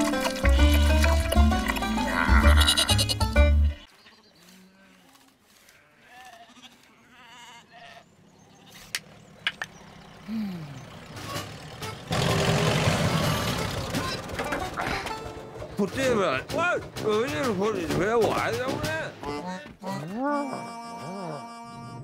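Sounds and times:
cartoon sheep bleating: 2.0 - 3.3.

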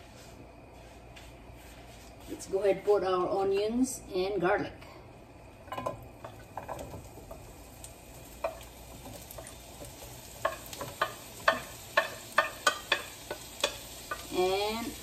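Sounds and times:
onions sizzling in hot oil: 5.6 - 15.0.

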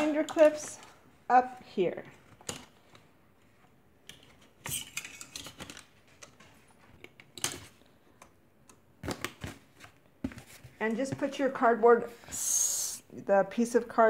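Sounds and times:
cardboard rustling: 9.0 - 11.6.

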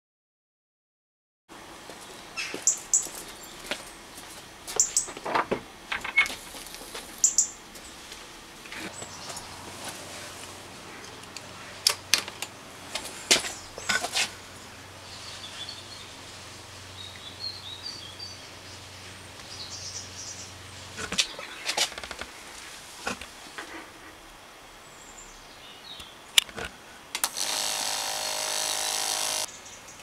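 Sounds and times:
sharp clicks and knocks: 26.4 - 29.5.

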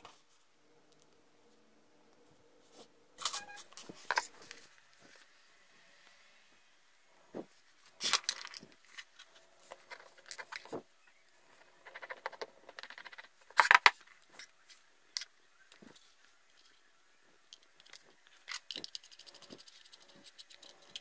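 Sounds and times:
metal parts clicking and scraping: 8.0 - 10.8, 17.5 - 21.0.

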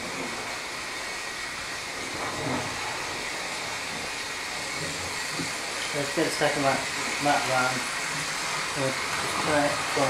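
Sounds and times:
model train motor whirring: 0.0 - 10.0.

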